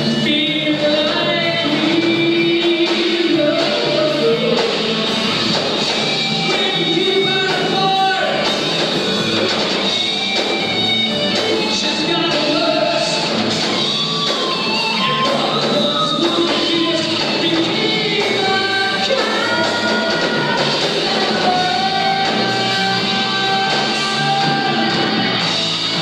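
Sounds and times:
person singing lead vocal: 0.0s - 5.6s, 6.2s - 8.6s, 11.3s - 26.0s
drums: 0.0s - 26.0s
electric guitars: 0.0s - 26.0s.

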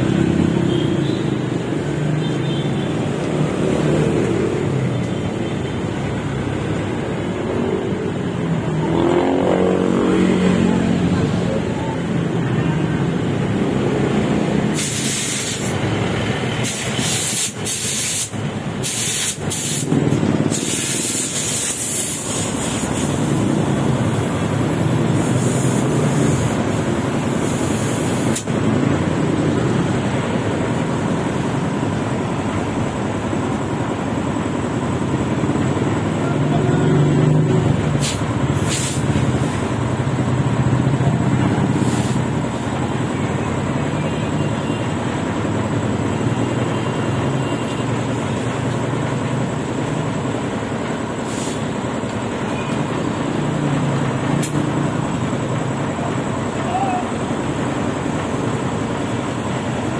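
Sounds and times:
shop background noise: 0.0s - 59.9s
air hose hissing: 14.6s - 15.9s, 16.6s - 23.5s, 25.1s - 28.6s, 38.0s - 39.6s, 41.7s - 42.7s, 51.2s - 51.8s.

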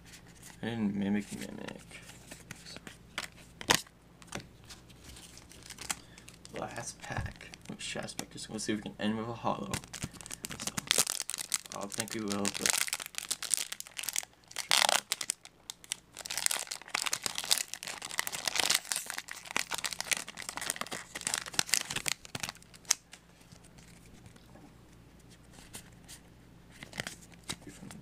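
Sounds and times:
foil wrapper crinkling and ripping: 5.1s - 6.6s, 9.7s - 24.1s.

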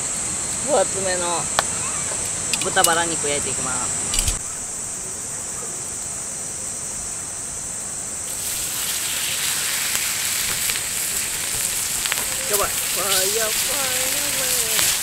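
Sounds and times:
pork sizzling on griddle pan: 8.3s - 15.0s.

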